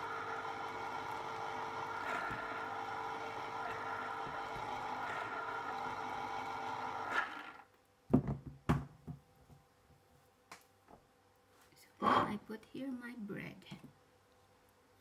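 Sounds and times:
electric juicer motor running: 0.0s - 7.7s.

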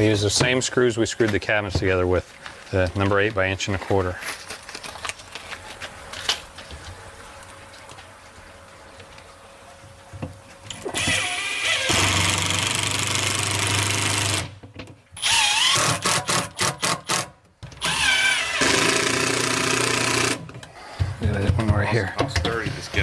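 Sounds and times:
impact driver hammering screws: 11.8s - 14.6s, 15.2s - 20.5s
motor whines: 15.2s - 16.0s, 17.8s - 20.4s.

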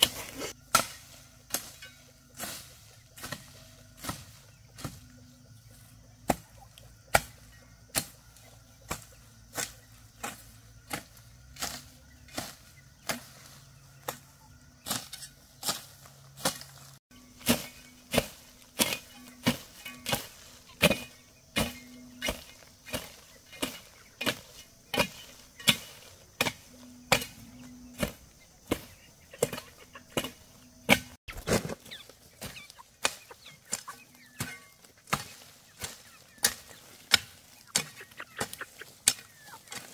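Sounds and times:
hoe chopping: 0.0s - 5.1s, 6.2s - 14.2s, 14.8s - 39.9s.

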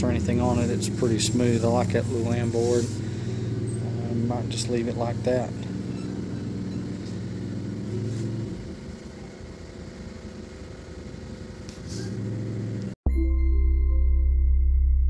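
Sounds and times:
outro jingle: 13.1s - 15.0s.

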